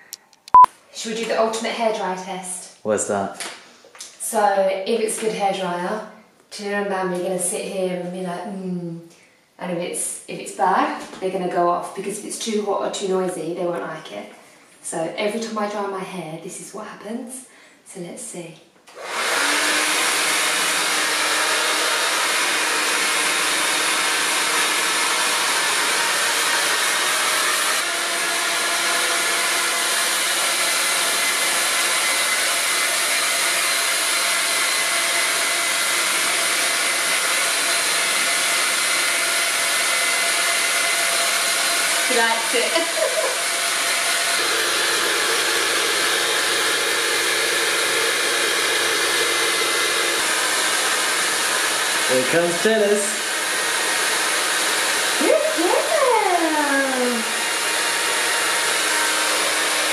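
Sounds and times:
hair dryer blowing: 18.9s - 59.9s.

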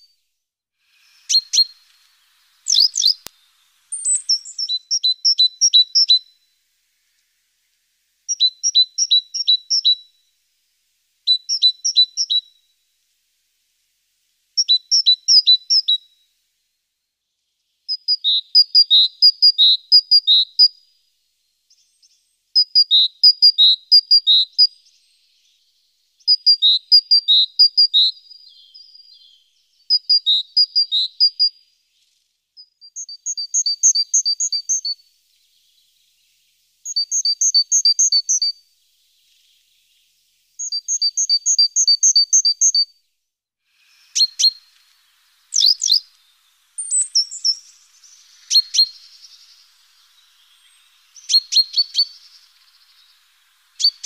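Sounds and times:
songbird singing: 0.9s - 43.2s, 43.8s - 54.0s.

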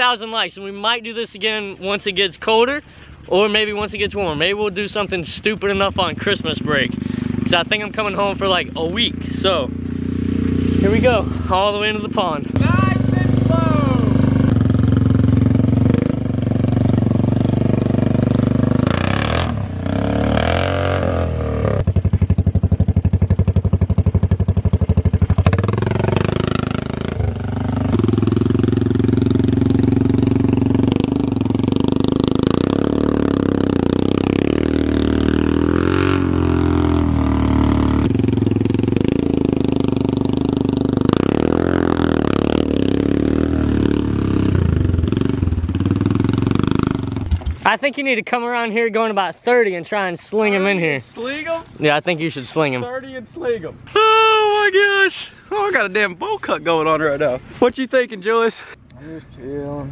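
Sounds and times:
quad bike engine revving: 3.3s - 47.8s.

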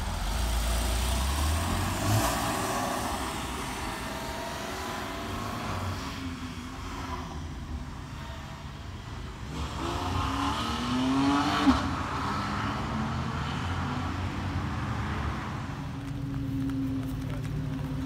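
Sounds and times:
car engine revving: 0.0s - 18.0s
traffic: 0.0s - 18.0s.

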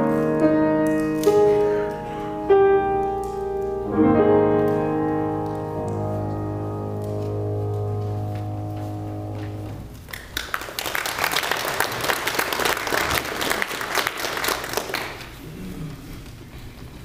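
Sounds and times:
keyboard holding chord: 0.0s - 10.0s
congregation applauding: 9.4s - 15.4s.

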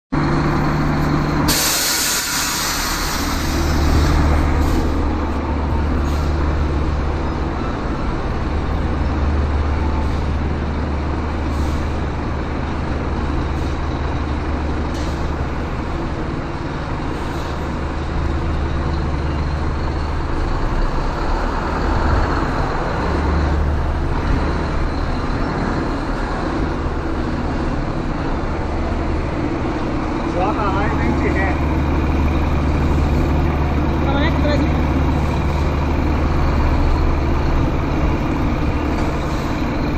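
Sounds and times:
diesel truck engine running: 0.1s - 39.9s
air brake hiss: 1.5s - 5.0s, 11.5s - 11.9s.

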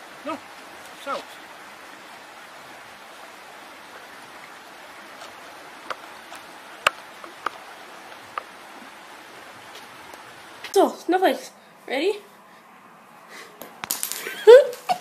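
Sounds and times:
shallow running water hiss: 0.0s - 13.6s.

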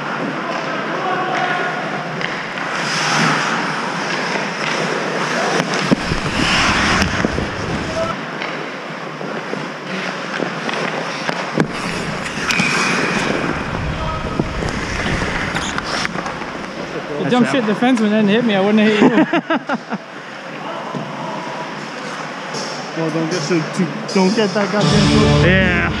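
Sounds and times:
skates scraping ice: 2.2s - 8.6s, 9.2s - 17.7s.

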